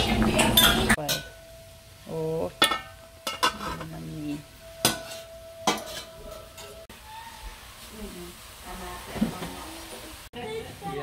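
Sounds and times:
ladle clinking against pot: 2.6 - 3.9, 4.8 - 6.8
stirring in a metal pot: 2.6 - 6.9.

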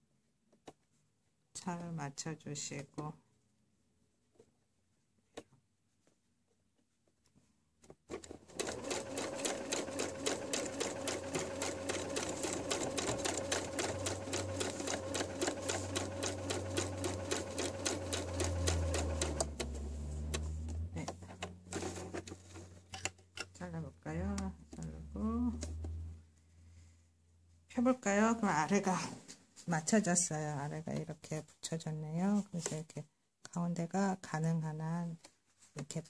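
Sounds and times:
sewing machine stitching: 8.1 - 22.4.

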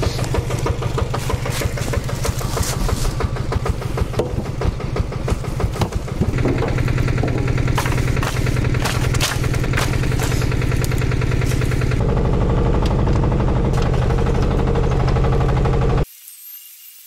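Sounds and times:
knocks and rattles: 0.0 - 12.0
tiller engine running: 0.0 - 16.1.

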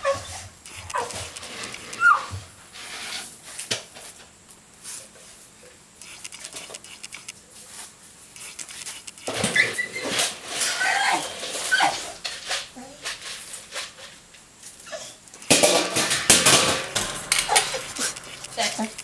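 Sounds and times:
dog whining and whimpering: 1.8 - 2.3, 9.4 - 12.2, 14.8 - 15.2
sharp metal clank: 15.4 - 19.0.

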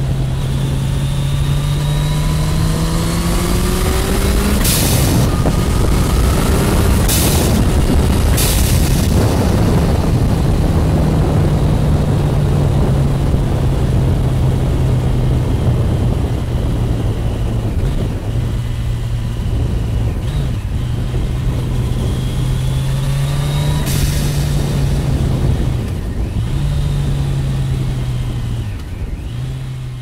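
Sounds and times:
motorcycle engine pulling: 0.0 - 11.7
wind rush: 0.0 - 30.0
high turbo whistle: 0.3 - 9.6.

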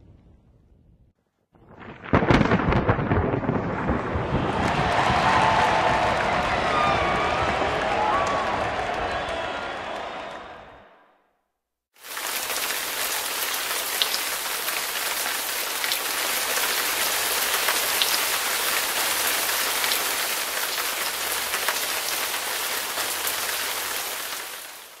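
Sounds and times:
rain-like hiss: 12.0 - 25.0.

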